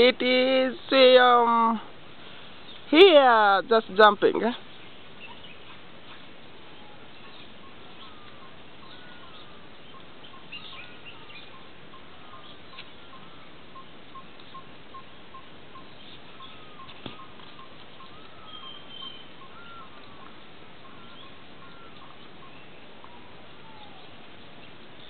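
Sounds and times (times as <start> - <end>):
bird ringing note: 13.1 - 20.2
bird chirps and whistles: 18.0 - 19.9.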